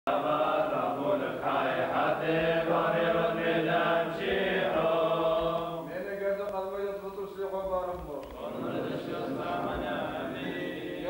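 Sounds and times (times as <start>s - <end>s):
voices singing a slow chant: 0.1s - 6.0s, 8.3s - 11.0s.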